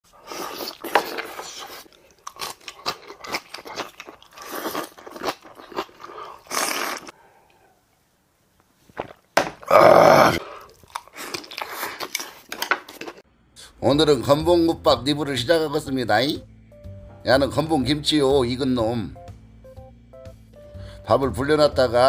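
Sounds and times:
man chewing and crunching food: 0.1s - 7.6s, 8.8s - 13.3s.

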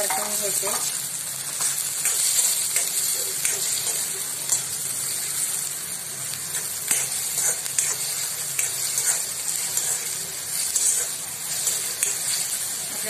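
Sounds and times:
vegetables sizzling in hot oil: 0.0s - 13.0s
metal spatula scraping a pan: 6.5s - 12.6s.

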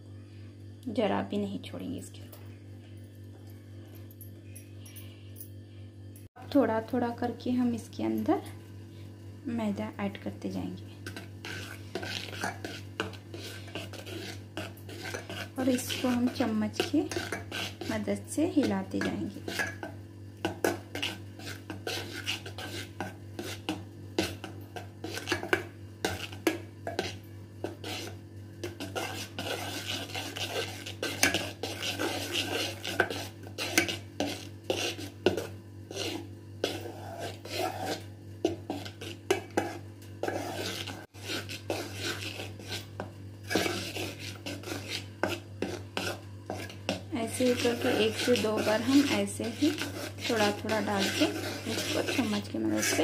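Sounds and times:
spoon stirring batter in metal bowl: 10.8s - 53.0s.

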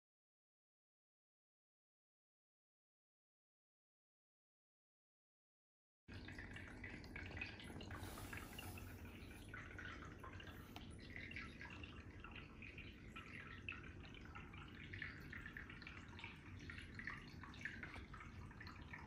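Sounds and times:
bubbles ticking: 6.1s - 19.0s.

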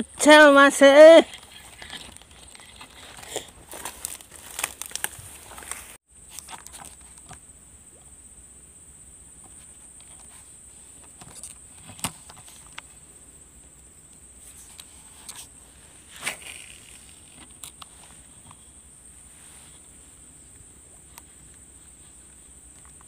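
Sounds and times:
fishing reel clicks and rustling: 1.2s - 7.4s, 14.6s - 18.7s.

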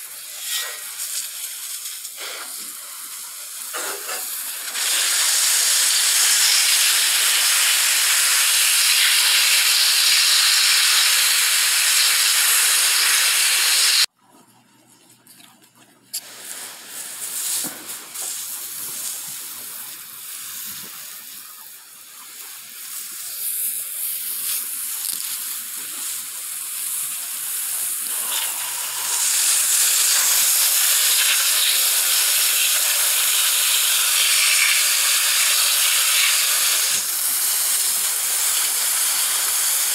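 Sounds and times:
hose nozzle spraying water: 0.0s - 14.1s, 16.1s - 39.9s.

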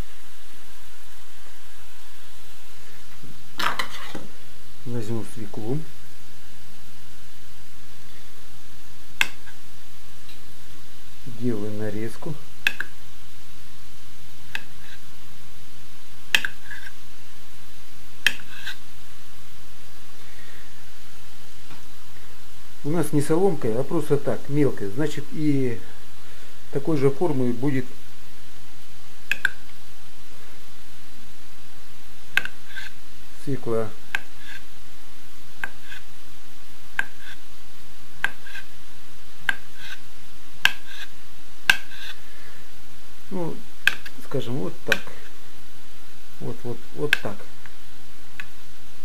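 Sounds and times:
knife slicing beet: 18.2s - 18.8s, 32.3s - 33.0s, 34.2s - 34.7s, 35.6s - 36.1s, 37.0s - 37.4s, 38.2s - 38.7s, 40.6s - 41.1s, 41.7s - 42.2s.

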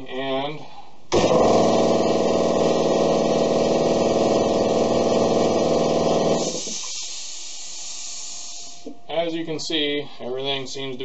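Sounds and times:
air compressor running: 1.1s - 8.9s
air hissing: 5.3s - 8.9s.

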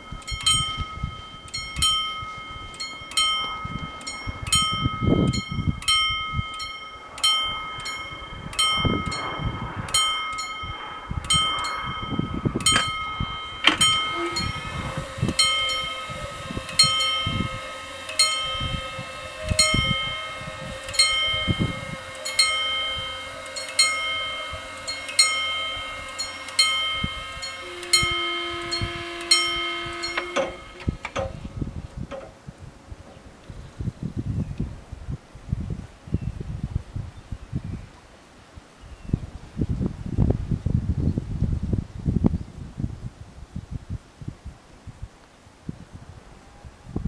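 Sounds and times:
level crossing bells ringing: 0.0s - 31.2s
barrier motor hum: 0.0s - 33.8s.

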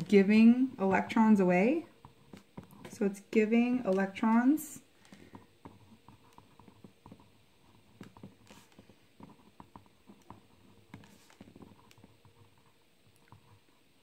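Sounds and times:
pen scratching on paper: 1.6s - 3.2s, 5.1s - 13.8s.

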